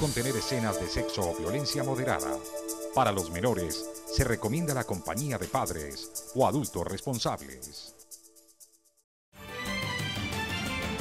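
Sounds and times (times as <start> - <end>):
held music notes: 0.0 - 7.6
news theme music: 0.0 - 8.4.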